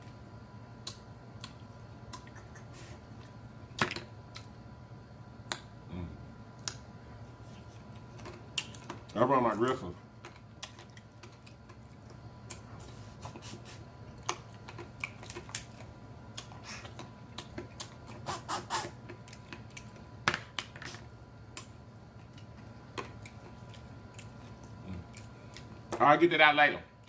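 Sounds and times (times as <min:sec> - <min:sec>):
low steady hum: 0:00.0 - 0:27.0
small clicks and sharp snaps: 0:00.8 - 0:02.3, 0:06.6 - 0:06.8
chewing and mouth smacks: 0:00.8 - 0:04.5, 0:07.4 - 0:20.8, 0:21.5 - 0:26.0.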